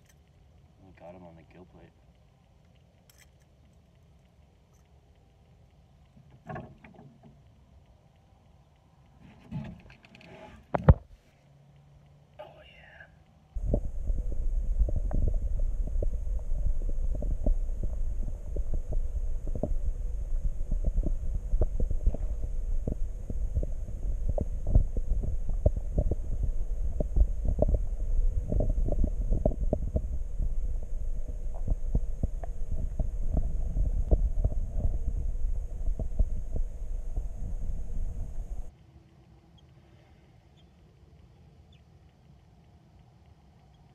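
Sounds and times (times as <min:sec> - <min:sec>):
underwater clicks and ticks: 0:00.0 - 0:12.4, 0:13.2 - 0:39.8, 0:40.5 - 0:43.9
faint high hiss: 0:11.1 - 0:43.9
underwater low rumble: 0:13.4 - 0:38.9.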